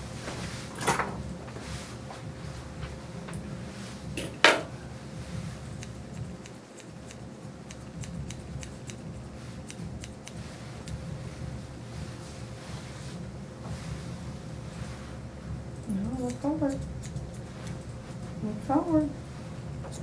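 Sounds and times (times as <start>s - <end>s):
shears snipping hair: 5.2s - 11.5s, 13.6s - 19.2s, 19.8s - 20.0s.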